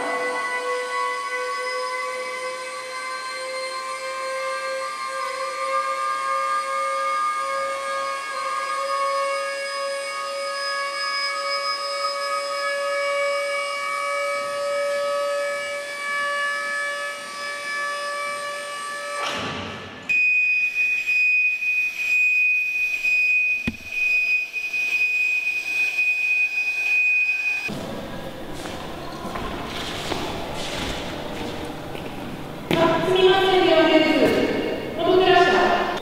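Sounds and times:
high pulsing tone: 20.7 - 29.2
short knock: 23.6 - 24.0.

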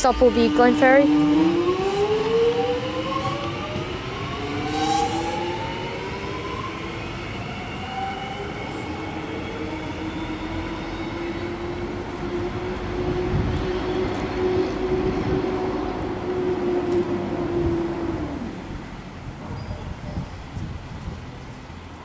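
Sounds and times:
train running rumble: 0.0 - 6.2, 11.6 - 22.0
train traction motors whining: 0.0 - 19.7.

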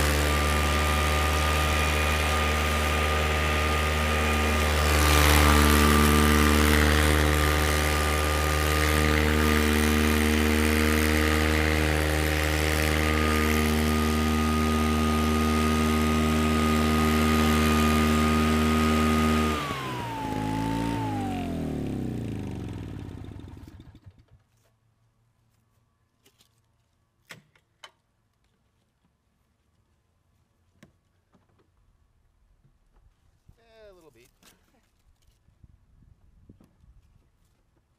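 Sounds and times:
blades cutting grass: 0.0 - 24.1
mower engine running: 0.0 - 24.2.

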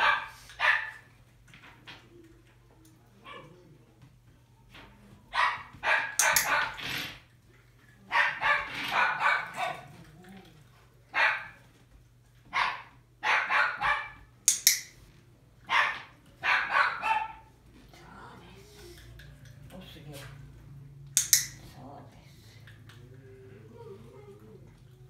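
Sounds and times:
dog barking: 0.0 - 1.1, 5.3 - 6.8, 8.1 - 9.9, 11.1 - 11.6, 12.5 - 14.3, 15.7 - 17.5.

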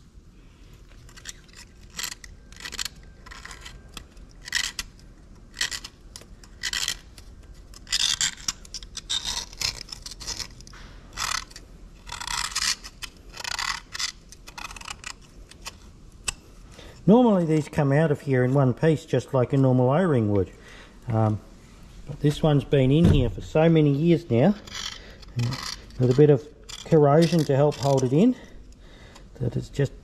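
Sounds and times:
steel tool scraping metal: 24.6 - 28.5.

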